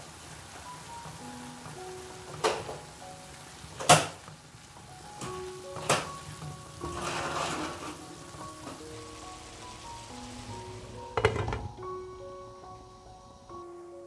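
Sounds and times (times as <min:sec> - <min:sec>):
soft background music: 0:00.0 - 0:14.0
spatula stirring food in pan: 0:05.7 - 0:08.8.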